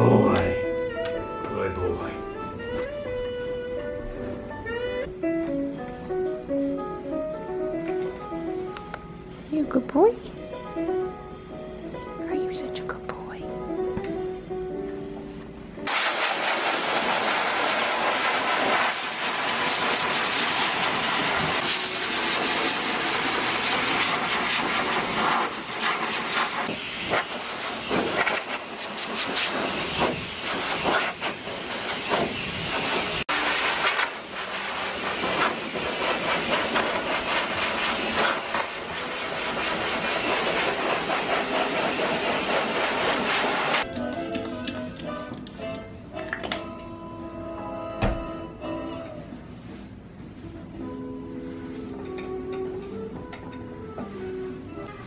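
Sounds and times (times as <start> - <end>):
dog dryer blowing air: 15.9 - 43.9.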